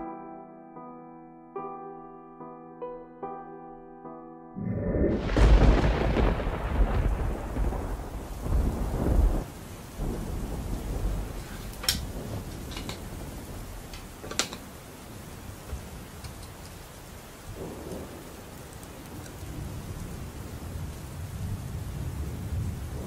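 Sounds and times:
thunder rumbling: 4.6 - 23.0
steady rain: 4.9 - 23.0
light clicks and knocks: 11.7 - 13.2, 13.9 - 14.8, 15.6 - 16.9.

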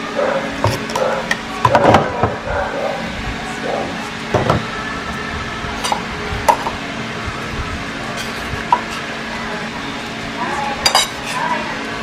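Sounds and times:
low background hum: 0.0 - 12.0
metal utensils and dishes clinking: 5.8 - 6.7, 10.8 - 11.6.

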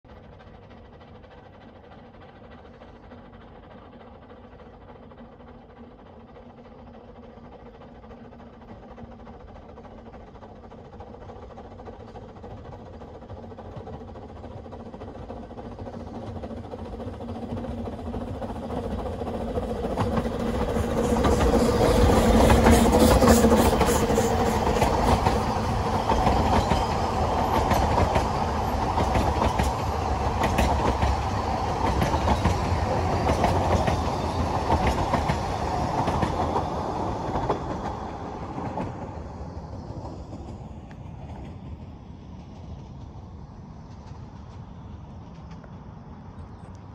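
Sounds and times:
steam locomotive running past: 0.0 - 46.9
train wheels clicking over rail joints: 0.1 - 46.2.

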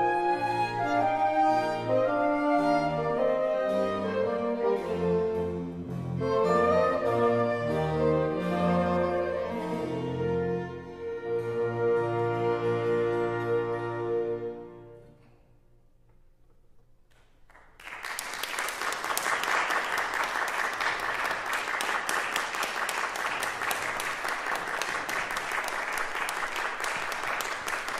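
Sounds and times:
audience applause: 17.5 - 27.9.

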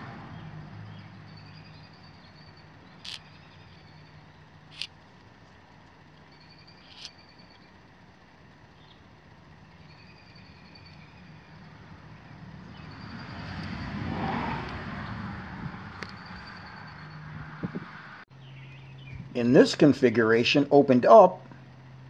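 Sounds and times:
vehicle passing by: 0.0 - 4.9, 10.4 - 18.8.

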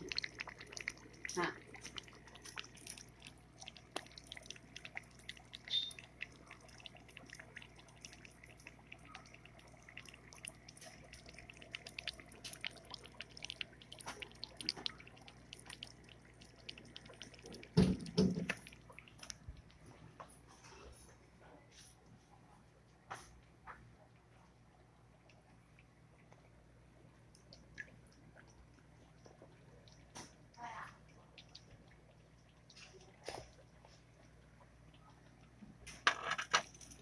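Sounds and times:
water dripping and bubbling: 0.0 - 20.5, 22.9 - 37.0
low steady hum: 0.0 - 37.0.

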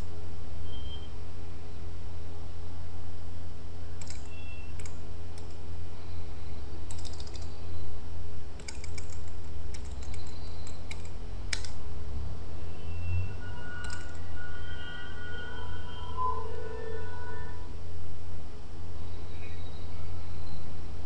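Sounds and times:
low electrical hum: 0.0 - 21.0
keyboard and mouse clicks: 4.0 - 5.6, 6.9 - 7.6, 8.6 - 11.8, 13.8 - 14.2.

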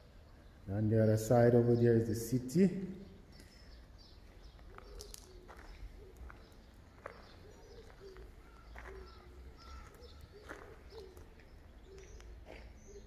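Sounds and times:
faint bird calls: 2.8 - 13.0.

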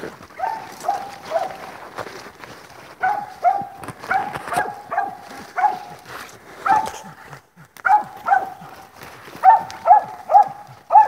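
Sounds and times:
dog barking: 0.4 - 1.7, 3.0 - 6.0, 6.6 - 7.2, 7.8 - 11.0.

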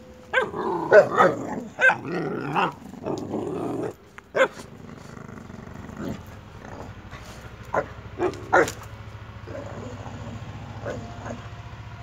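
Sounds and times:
dog barking: 0.3 - 2.8, 4.3 - 4.7, 7.7 - 8.9, 10.8 - 11.5
dogs play-growling: 0.4 - 11.4.

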